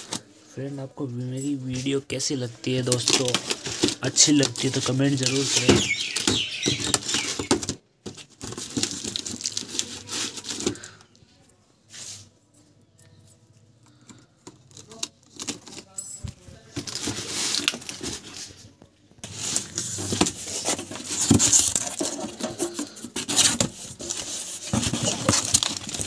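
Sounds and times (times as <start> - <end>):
cardboard box and plastic rustling: 2.7 - 11.2, 14.0 - 26.0.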